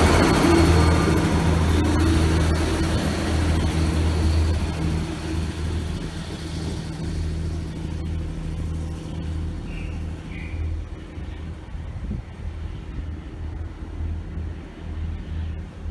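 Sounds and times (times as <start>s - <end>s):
train diesel engine drone: 0.0s - 15.9s.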